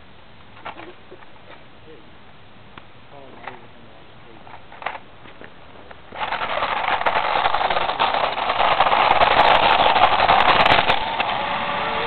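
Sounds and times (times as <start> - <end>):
gravel crunching under tyres: 2.8 - 11.6
toy car electric motor whirring: 6.2 - 11.5.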